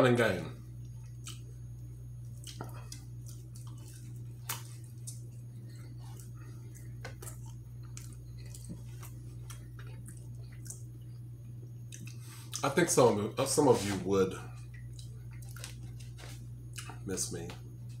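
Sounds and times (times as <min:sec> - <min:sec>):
steady low hum: 0:00.0 - 0:18.0
person chewing food: 0:00.8 - 0:12.6, 0:14.5 - 0:17.0
wet mouth clicks and smacks: 0:01.0 - 0:01.5, 0:11.9 - 0:12.6.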